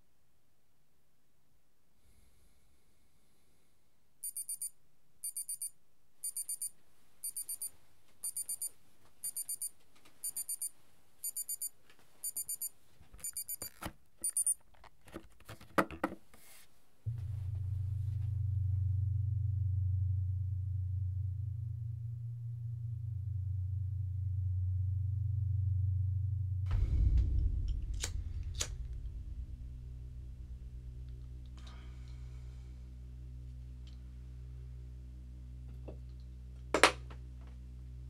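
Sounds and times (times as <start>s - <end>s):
alarm clock beeping: 4.2s - 14.6s
low steady hum: 17.0s - 38.0s
knocks and sharp thump: 26.7s - 31.4s.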